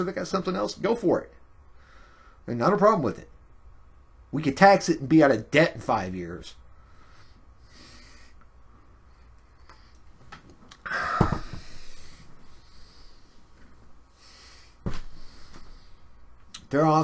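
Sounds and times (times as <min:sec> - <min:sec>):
man breathing: 0:01.7 - 0:02.4, 0:06.7 - 0:16.4.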